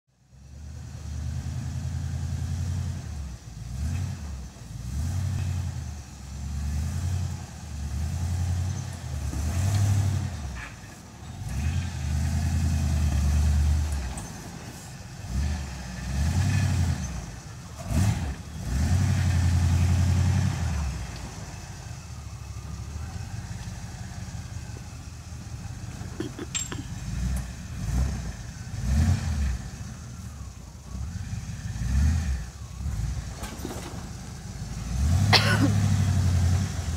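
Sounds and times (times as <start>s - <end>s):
engine revving in pulses: 0.6s - 14.3s, 15.1s - 36.9s.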